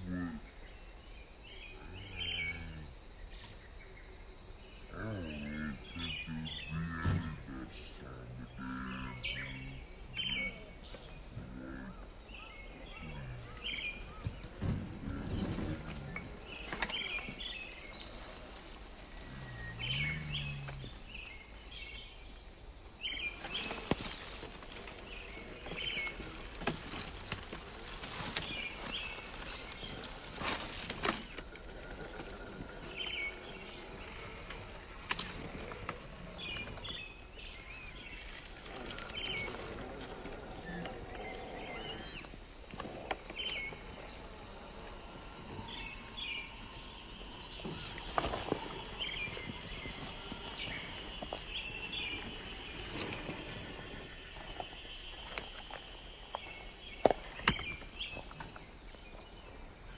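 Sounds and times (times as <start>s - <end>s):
small birds chirping: 0.0s - 59.9s
dry leaves and twigs crackling: 10.3s - 21.7s, 23.0s - 59.2s.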